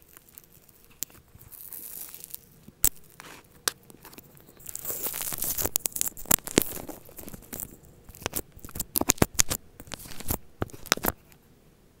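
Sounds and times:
slime crackling and popping: 0.0 - 11.4.

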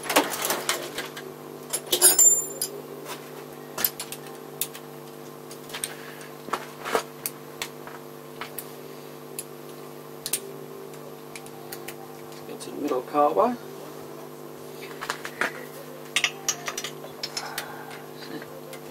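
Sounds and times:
high metallic ring: 1.8 - 2.8.

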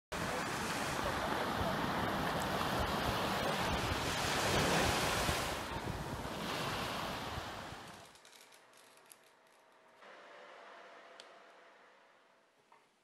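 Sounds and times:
small waves washing on sand: 0.1 - 8.0.

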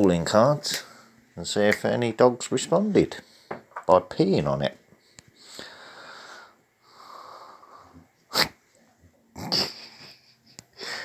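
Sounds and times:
close breathing: 3.2 - 3.6, 5.0 - 8.1, 10.7 - 11.0.

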